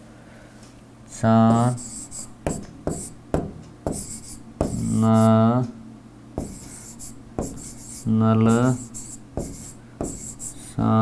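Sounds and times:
stylus scratchy strokes: 1.8s - 2.3s, 6.4s - 10.8s
stylus tapping on screen: 2.1s - 4.8s, 6.4s - 6.8s, 9.4s - 10.3s.

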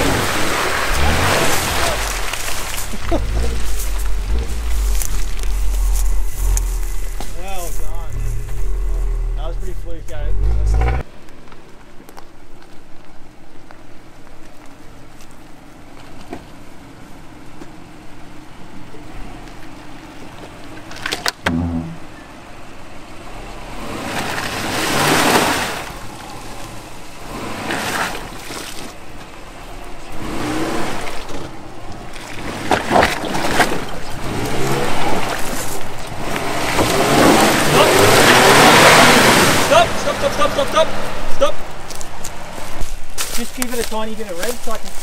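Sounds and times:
tyres spinning in sand: 0.0s - 11.0s
car engine revving: 0.0s - 11.1s, 21.4s - 28.4s, 29.6s - 41.4s
sharp knock: 21.4s - 22.1s.

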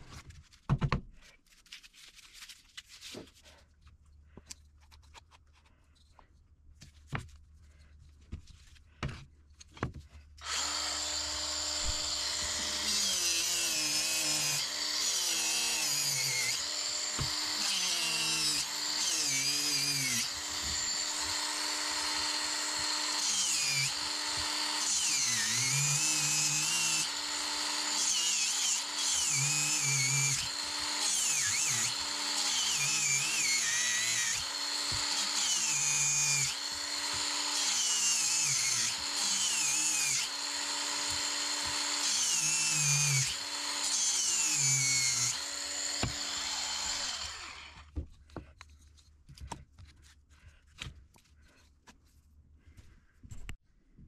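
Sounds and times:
power tool cutting wood: 10.4s - 47.9s.

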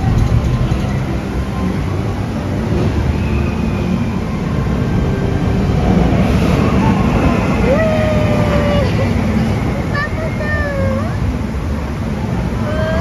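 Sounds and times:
roller coaster rumbling on track: 0.0s - 13.0s.

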